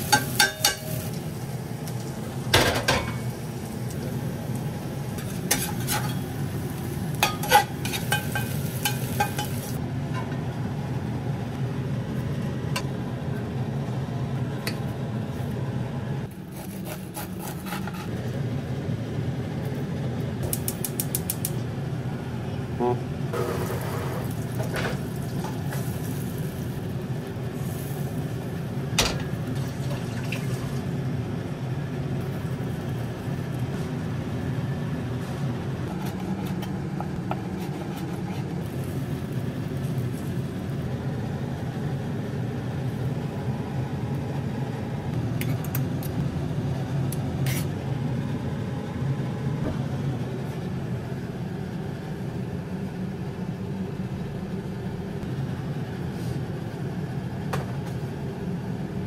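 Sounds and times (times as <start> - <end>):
pans and utensils clinking: 0.0 - 1.0, 5.2 - 6.3, 7.2 - 10.3.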